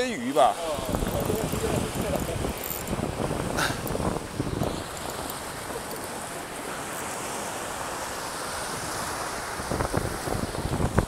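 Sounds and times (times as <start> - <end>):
sea surf over rocks: 0.0 - 11.0
wind on microphone: 0.6 - 6.4, 8.6 - 11.0.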